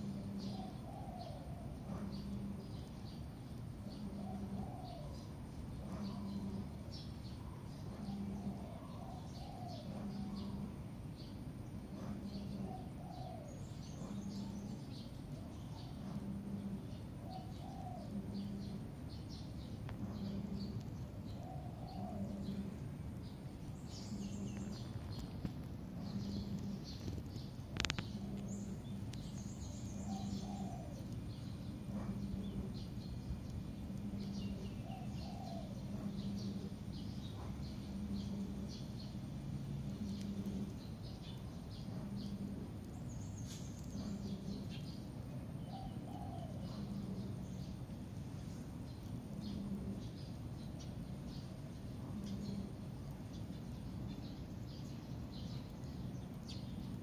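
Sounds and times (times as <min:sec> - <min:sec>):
dove-like bird calls: 0:00.0 - 0:57.0
faint high chirping and ticking: 0:00.0 - 0:57.0
low repeating animal call: 0:03.8 - 0:06.8, 0:07.8 - 0:10.9, 0:15.4 - 0:19.0, 0:27.7 - 0:39.2.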